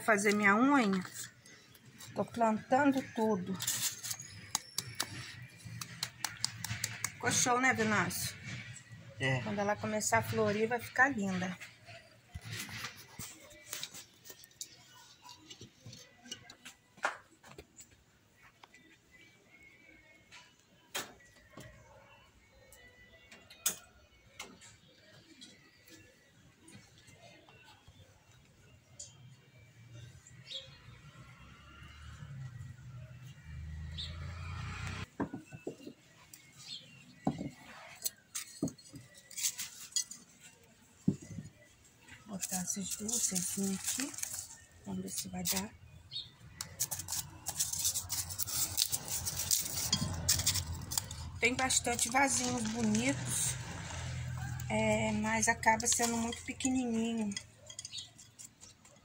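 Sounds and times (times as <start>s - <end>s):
plant pots knocking and clinking: 35.2s - 36.2s, 37.2s - 40.2s, 55.4s - 59.0s.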